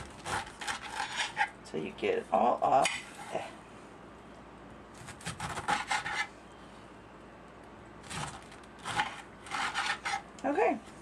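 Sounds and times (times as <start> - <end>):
knife rasping through pineapple rind: 0.0 - 1.6, 5.0 - 6.3, 8.1 - 10.3.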